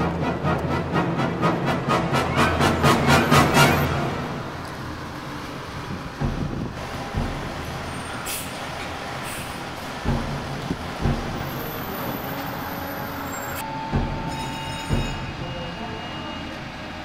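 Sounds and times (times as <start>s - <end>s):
diesel engine running: 0.0s - 17.0s
short low thumps: 5.9s - 8.2s, 9.6s - 12.0s, 13.7s - 15.4s.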